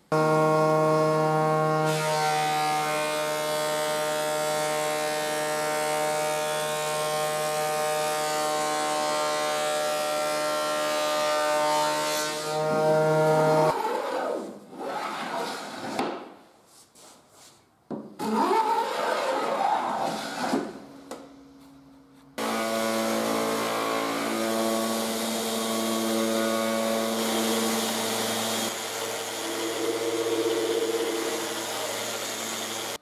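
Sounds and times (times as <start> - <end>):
planer machine whine: 22.4 - 33.0.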